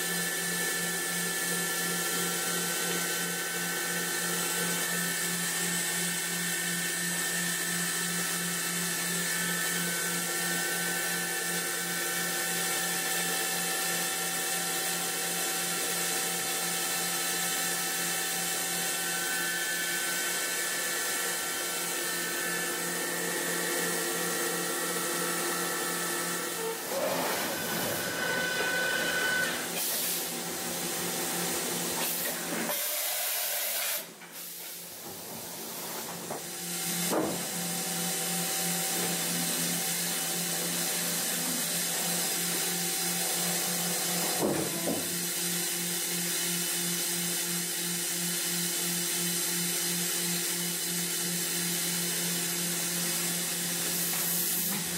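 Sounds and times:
machine spindle whine: 16.8s - 29.8s.

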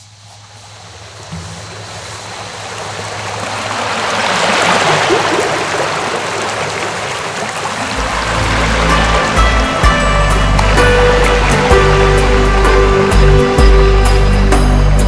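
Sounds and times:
low sustained tones: 7.9s - 15.0s.

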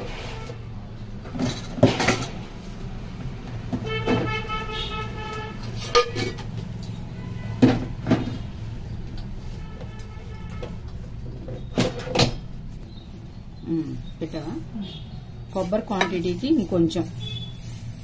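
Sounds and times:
background traffic: 0.0s - 18.0s
vehicle horn: 3.8s - 6.1s, 7.1s - 7.9s, 9.5s - 10.9s, 17.2s - 17.8s.

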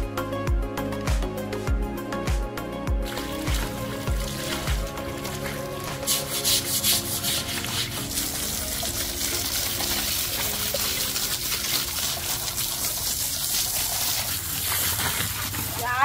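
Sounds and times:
hose water spraying on rock: 3.0s - 16.0s
water splashing: 3.0s - 16.0s.

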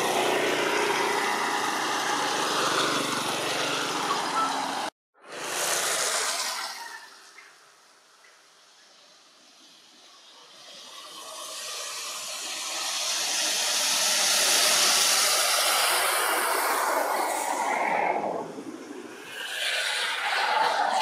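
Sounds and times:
rushing hiss: 5.3s - 17.9s.

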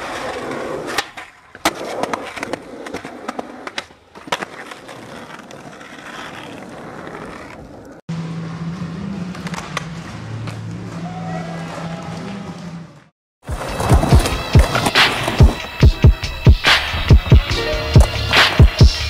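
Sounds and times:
skateboard wheels rolling on concrete: 0.0s - 19.0s
skateboard clacking: 13.5s - 15.8s.

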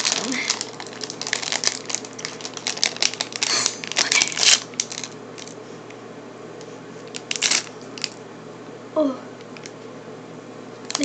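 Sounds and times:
plastic candy bag crinkling: 0.0s - 5.6s, 7.0s - 8.2s.

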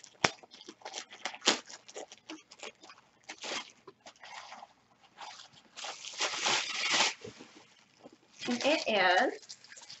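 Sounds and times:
packaging rustling: 5.2s - 8.8s.

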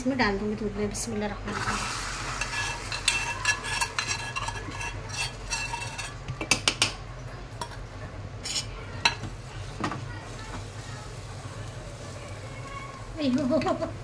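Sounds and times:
ladle scraping metal pot: 1.5s - 6.5s.

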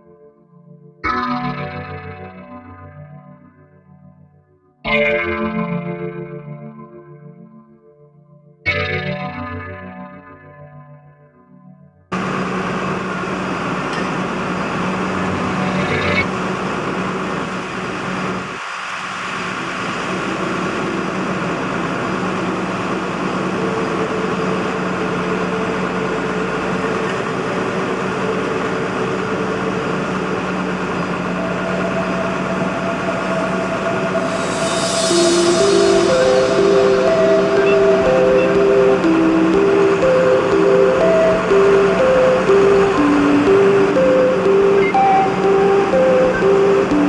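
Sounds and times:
diesel engine drone: 12.1s - 47.0s
hydraulic whine: 12.2s - 47.0s.

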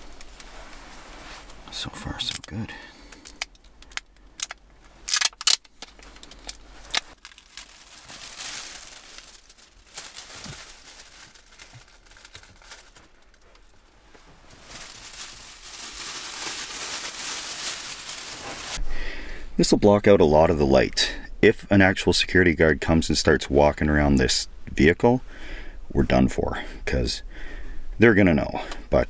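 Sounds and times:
space blankets crinkling: 0.0s - 3.5s, 4.9s - 18.8s
foil sheet ripping: 4.4s - 5.7s, 6.3s - 13.4s, 14.6s - 18.8s.

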